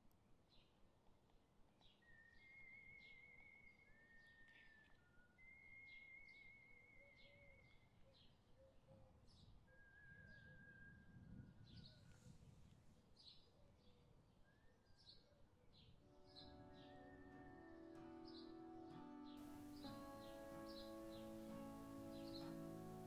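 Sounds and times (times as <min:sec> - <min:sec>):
birds chirping: 0:19.4 - 0:23.0.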